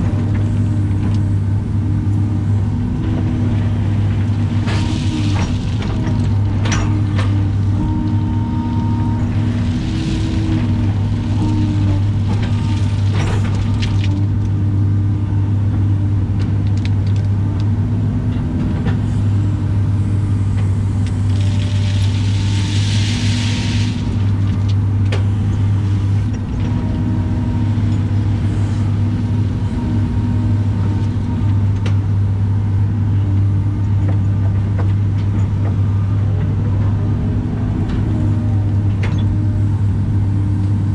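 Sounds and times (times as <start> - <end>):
excavator diesel engine running: 0.0 - 40.9
hydraulic whine: 3.0 - 14.4
gravel clattering in bucket: 4.4 - 7.7, 9.3 - 14.3, 21.1 - 24.8
rock spilling out: 21.3 - 24.6.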